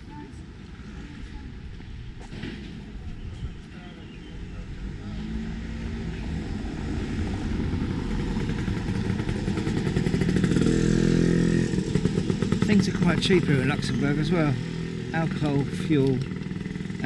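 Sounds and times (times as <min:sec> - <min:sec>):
vehicle engine droning: 0:03.8 - 0:17.0.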